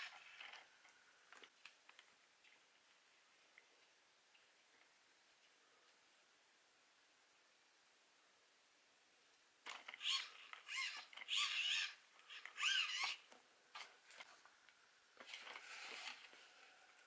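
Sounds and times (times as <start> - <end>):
plastic steering linkage squeaking: 9.9 - 13.2.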